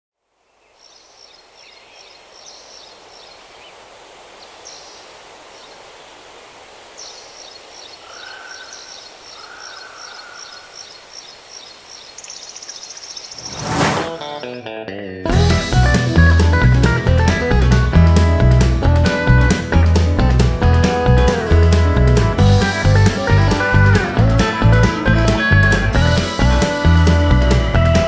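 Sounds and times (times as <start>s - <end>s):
birds chirping: 0.4s - 14.6s
loud rushing sound: 13.4s - 14.4s.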